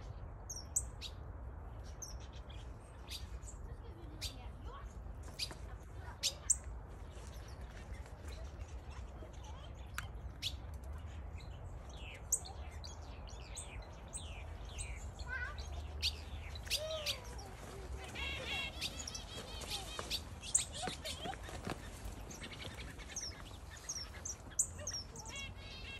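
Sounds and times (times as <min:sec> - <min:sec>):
finches chirping and twittering: 0:00.4 - 0:25.9.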